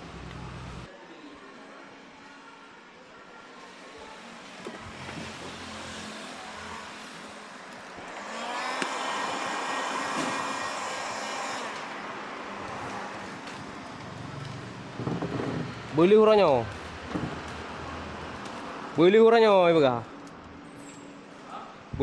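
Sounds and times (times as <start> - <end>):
heat gun blowing with motor whine: 8.0 - 11.9.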